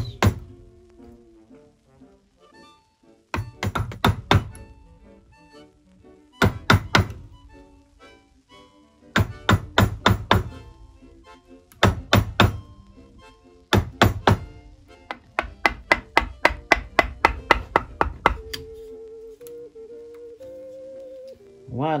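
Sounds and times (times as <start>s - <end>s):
mallet striking a chisel: 0.0s - 0.5s, 3.4s - 4.6s, 6.4s - 7.2s, 9.2s - 10.6s, 11.8s - 12.7s, 13.7s - 18.7s.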